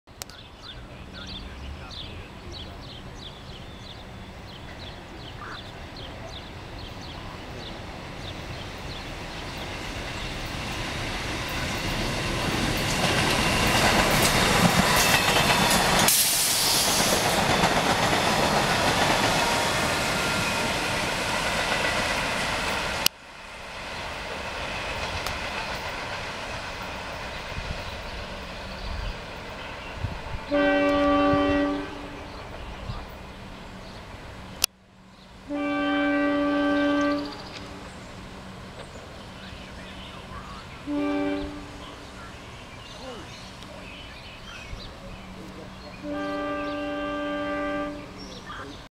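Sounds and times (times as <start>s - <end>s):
train passing at speed: 0.2s - 48.9s
wheels clicking over rail joints: 8.2s - 19.6s
train horn blast: 30.4s - 32.4s, 35.5s - 37.8s, 40.8s - 42.0s, 46.0s - 48.3s.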